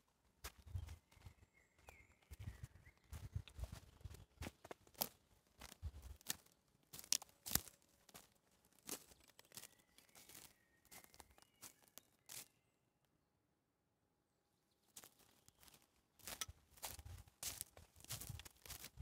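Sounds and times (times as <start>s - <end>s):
footsteps crunching on twigs: 3.1s - 12.6s, 15.0s - 19.0s.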